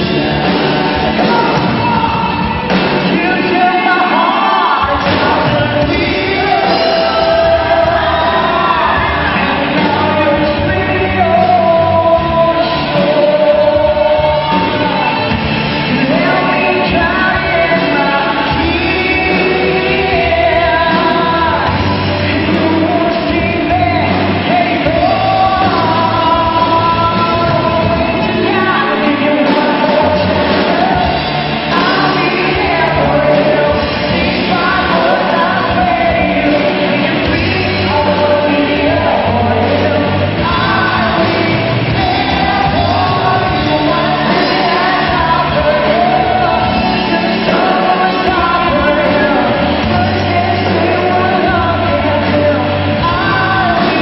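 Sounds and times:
bass guitar: 0:00.0 - 0:54.0
drums: 0:00.0 - 0:54.0
electric guitars: 0:00.0 - 0:54.0
person singing long held notes: 0:00.0 - 0:54.0
rock band playing: 0:00.0 - 0:54.0.

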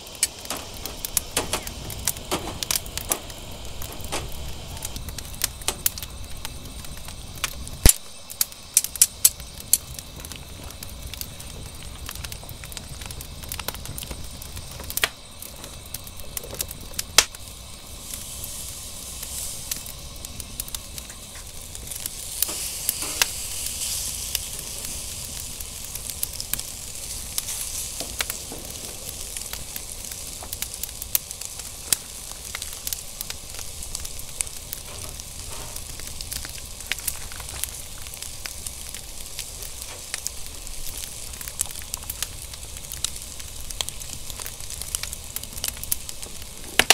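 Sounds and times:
meat sizzling: 0:00.0 - 0:46.9
wood fire crackling and popping: 0:00.0 - 0:46.9
sharp clicks: 0:00.2 - 0:06.1.

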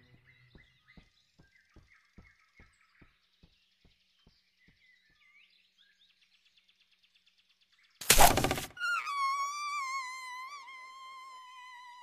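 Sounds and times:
birds chirping: 0:00.0 - 0:09.3.

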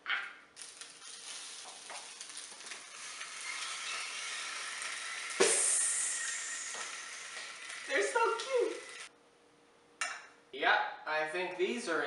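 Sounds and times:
food sizzling on hot plates: 0:00.6 - 0:09.1.

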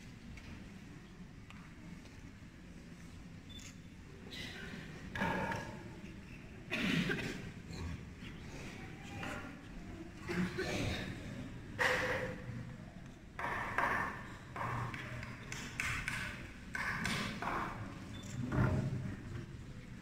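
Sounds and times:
taps and knocks on wood: 0:13.4 - 0:17.9.

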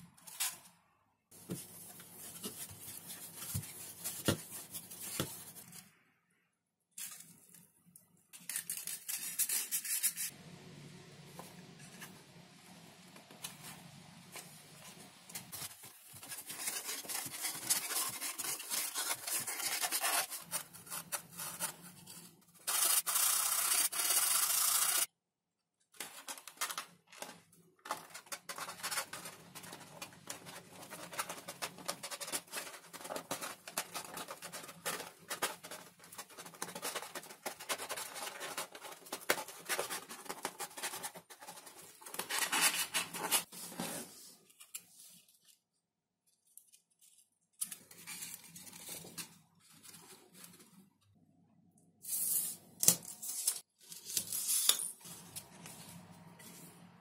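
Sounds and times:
foam sheets rubbing and crinkling: 0:01.4 - 0:05.8, 0:14.4 - 0:25.1, 0:27.9 - 0:45.3.

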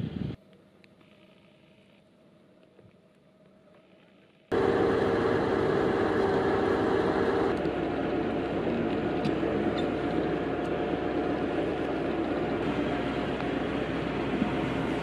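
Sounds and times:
crane engine running: 0:04.5 - 0:15.0.

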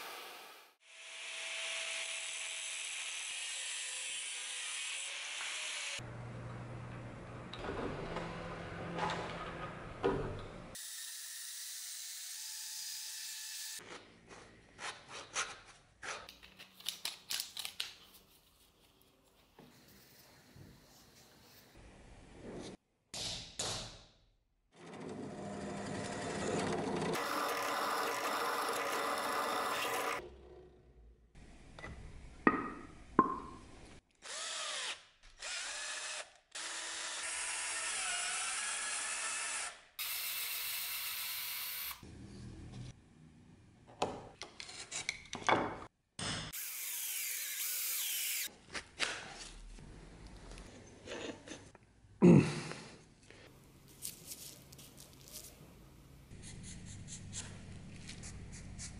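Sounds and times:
drill press boring through metal: 0:25.2 - 0:30.2
electric drill boring through leather: 0:27.1 - 0:30.2, 0:34.3 - 0:42.0.

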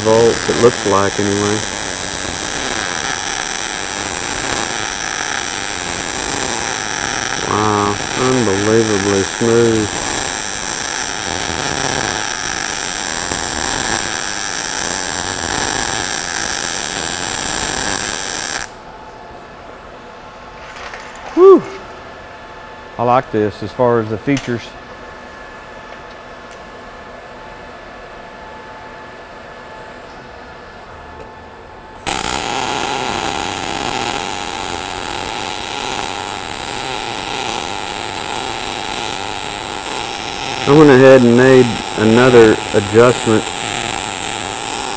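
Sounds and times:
mig welding arc: 0:00.0 - 0:18.8, 0:32.0 - 0:44.9.

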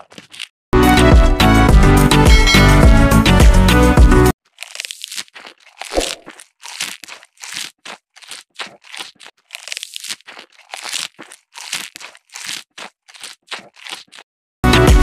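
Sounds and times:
crunching and tearing green leaves: 0:00.0 - 0:00.5, 0:04.4 - 0:14.3
music: 0:00.8 - 0:04.3, 0:14.6 - 0:15.0.

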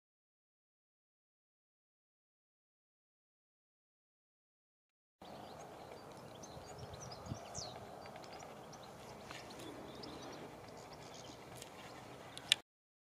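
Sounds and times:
songbirds chirping: 0:05.2 - 0:12.6
steady background hush: 0:05.2 - 0:12.6.

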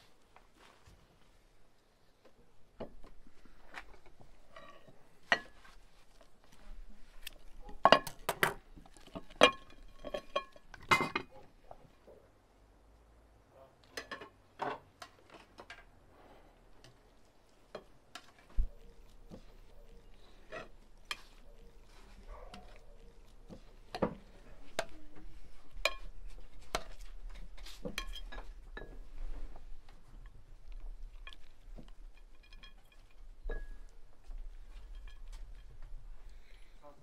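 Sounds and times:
plates and cutlery clinking: 0:07.8 - 0:11.4, 0:27.7 - 0:29.2.

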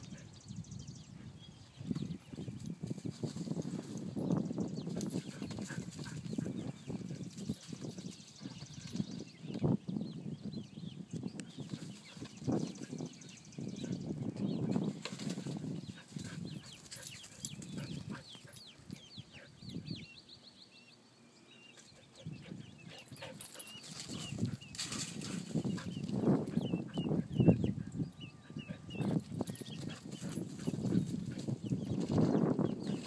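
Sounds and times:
chicks peeping: 0:21.7 - 0:33.0.

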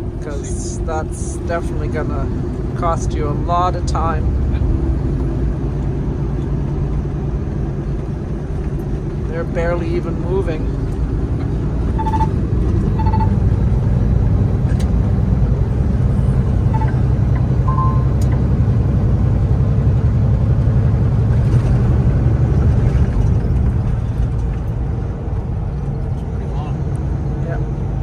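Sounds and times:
truck engine and tyres rumbling: 0:00.0 - 0:28.0
short electronic beeps: 0:11.9 - 0:13.4, 0:16.7 - 0:18.4.

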